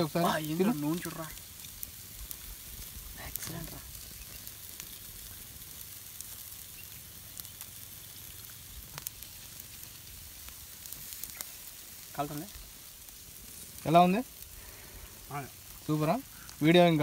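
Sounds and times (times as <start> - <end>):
charcoal fire crackles: 0.0 - 17.0
chicken sizzling on grill: 0.0 - 17.0.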